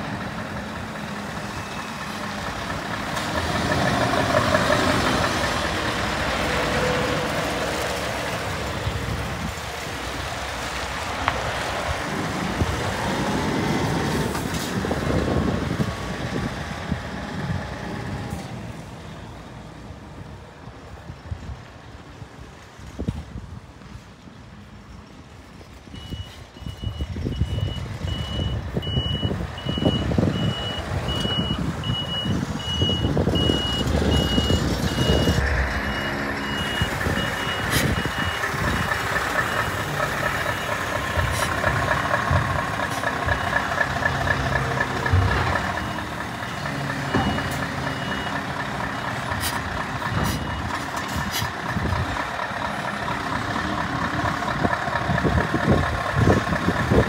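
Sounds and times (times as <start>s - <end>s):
truck diesel engine passing: 0.0s - 22.2s, 24.8s - 57.0s
reversing alarm beeping: 26.0s - 41.3s, 45.2s - 46.2s, 47.0s - 49.2s, 50.1s - 50.8s.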